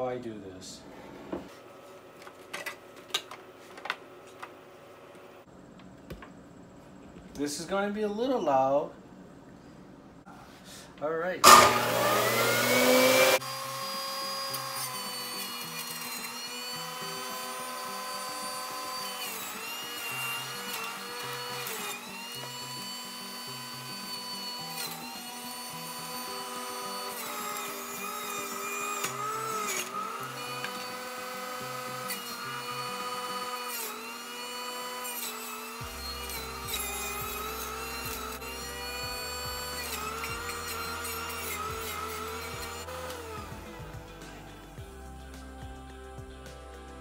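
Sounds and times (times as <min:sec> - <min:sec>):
background music: 0:11.4 - 0:34.0, 0:35.8 - 0:47.0
juicer motor whining: 0:11.4 - 0:44.9.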